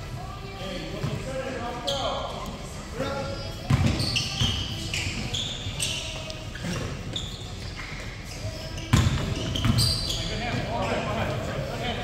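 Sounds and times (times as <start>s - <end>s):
sneaker squeaks on court: 1.8s - 11.2s
basketball bouncing: 3.7s - 4.6s, 8.9s - 9.9s.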